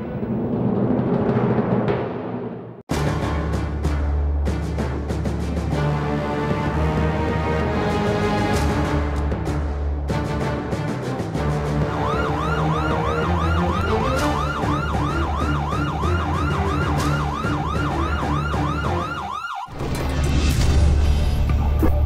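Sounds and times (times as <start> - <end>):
background music: 2.9 - 22.0
police siren yelping: 11.8 - 19.8.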